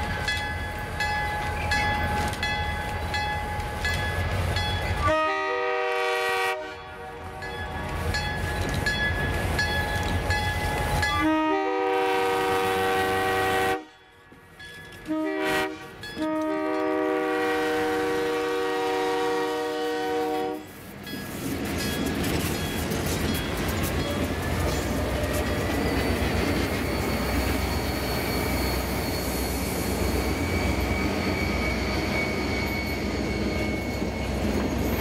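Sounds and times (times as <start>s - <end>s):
locomotive bell ringing: 0.0s - 5.4s, 6.6s - 11.6s, 13.9s - 15.3s, 15.9s - 17.4s, 21.0s - 35.0s
diesel locomotive engines rumbling: 0.0s - 35.0s
train air horn blasts: 5.0s - 7.4s, 11.1s - 14.0s, 15.0s - 20.9s.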